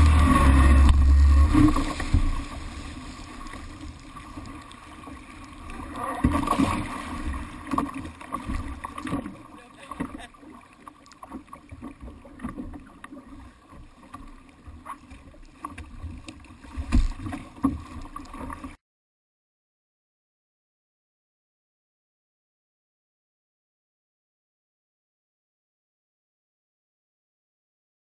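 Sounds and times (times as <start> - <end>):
jet ski engine drone: 0.0 - 3.7
hull thumping on waves: 0.0 - 10.4, 11.2 - 18.8
rushing water: 0.0 - 18.8
wind: 0.0 - 18.8.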